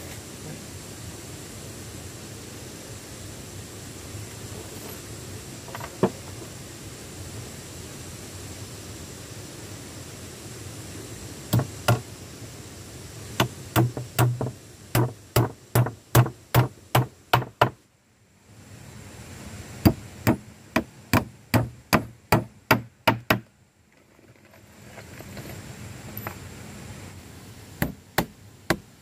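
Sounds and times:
hammer driving nails into wood: 0:11.6 - 0:12.0, 0:13.4 - 0:17.8, 0:19.9 - 0:23.5.

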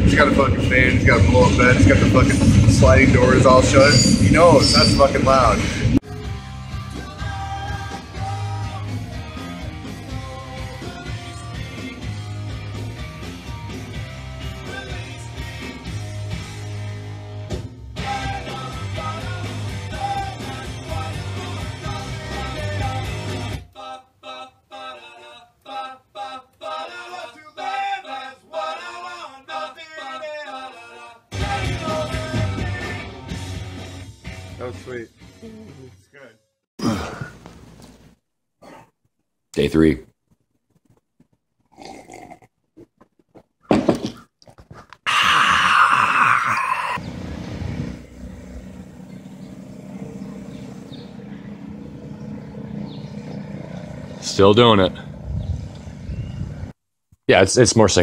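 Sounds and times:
low engine rumble: 0:00.0 - 0:06.0, 0:47.0 - 0:56.7
man singing alone: 0:06.8 - 0:12.2, 0:18.0 - 0:33.2.

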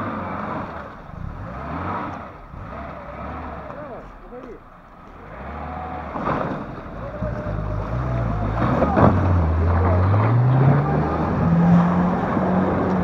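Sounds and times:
car engine revving: 0:00.0 - 0:13.0.

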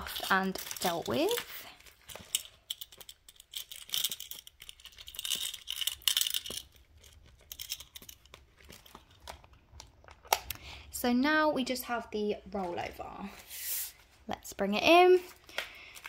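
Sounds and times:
paper and plastic crinkling: 0:00.0 - 0:10.5.

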